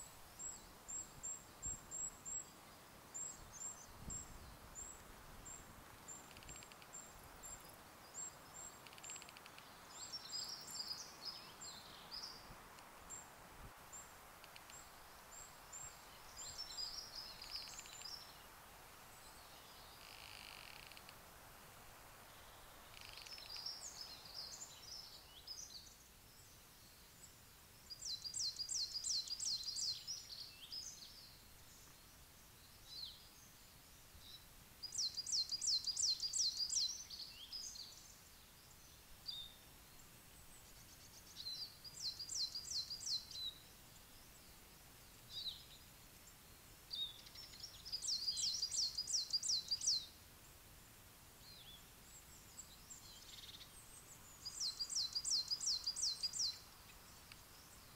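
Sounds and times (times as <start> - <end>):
soft bird chirps: 0.0 - 21.2, 22.2 - 50.5, 51.4 - 57.9
songbird singing rising notes: 13.9 - 18.5, 22.2 - 33.6, 34.2 - 50.2, 51.4 - 57.9.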